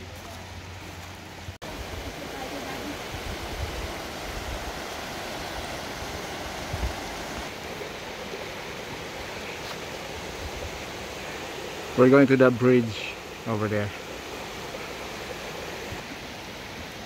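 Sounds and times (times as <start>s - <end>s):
creek rushing over stones: 0.0s - 17.0s.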